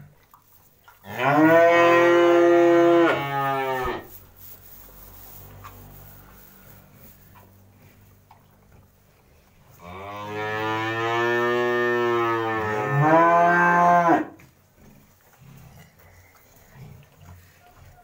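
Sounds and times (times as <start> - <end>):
cattle moo: 1.0 - 4.1, 9.8 - 14.4.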